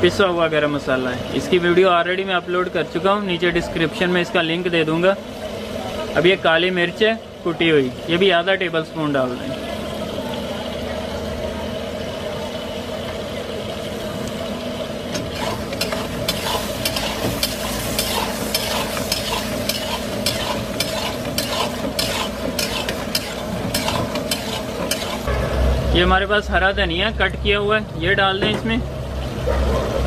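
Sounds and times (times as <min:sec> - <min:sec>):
meat sizzling in a pan: 0:14.0 - 0:25.3
spoon scraping and knocking pan: 0:15.2 - 0:25.3.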